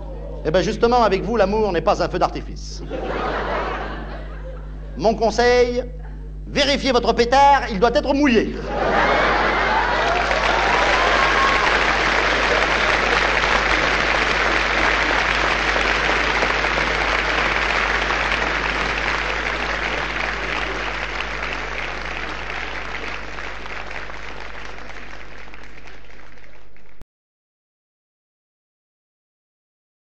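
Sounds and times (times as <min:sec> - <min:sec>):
steady low hum: 0:00.0 - 0:27.0
audience applauding: 0:08.7 - 0:27.0.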